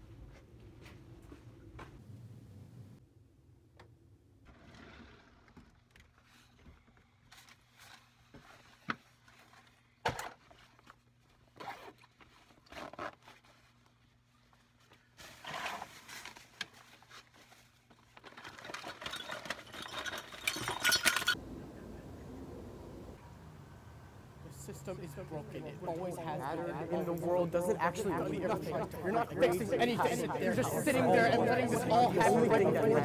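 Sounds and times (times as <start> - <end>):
rustling and shuffling: 0.0 - 2.6, 5.3 - 21.4
low steady hum: 21.2 - 33.0.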